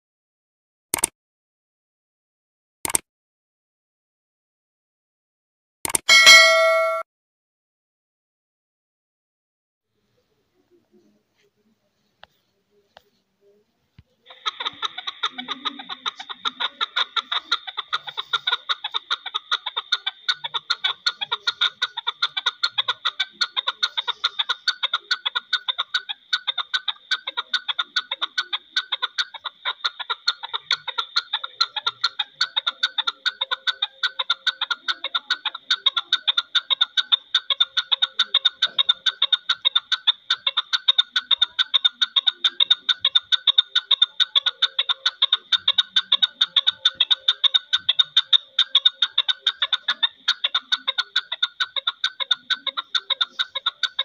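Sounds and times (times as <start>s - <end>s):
partridge calling: 14.3s - 54.0s.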